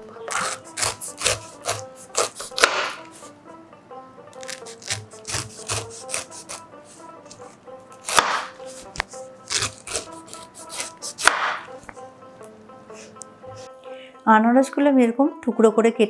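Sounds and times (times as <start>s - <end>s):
knife slicing pineapple skin: 0.3s - 3.3s, 4.4s - 11.8s.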